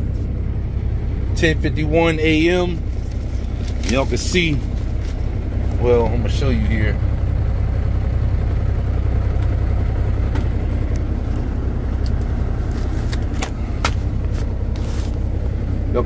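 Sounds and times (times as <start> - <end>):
diesel engine idling: 0.0 - 16.0
handling clicks and taps: 10.3 - 14.5.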